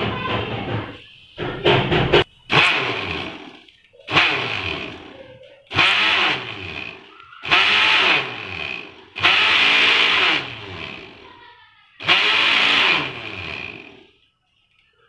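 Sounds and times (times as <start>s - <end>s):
mixer grinder motor whirring: 2.5s - 11.4s, 12.0s - 14.3s.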